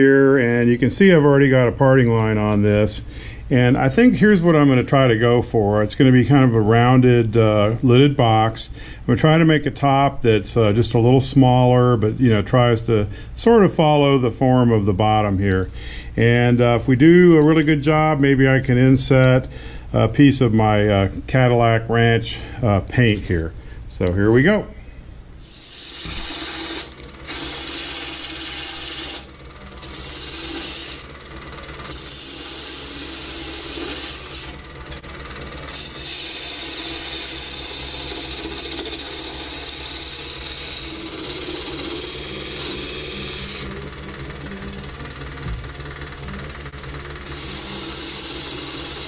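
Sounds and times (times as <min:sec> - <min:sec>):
lathe motor hum: 0:25.4 - 0:49.0
gouge scraping wood: 0:25.5 - 0:31.0, 0:47.3 - 0:49.0.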